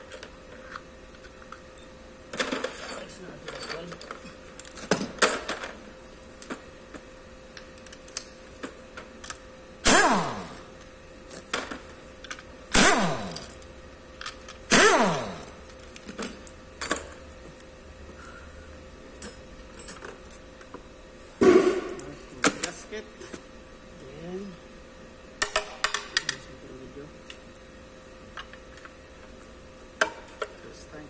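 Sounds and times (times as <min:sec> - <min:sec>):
metal tools clicking and rattling: 0:01.2 - 0:05.8.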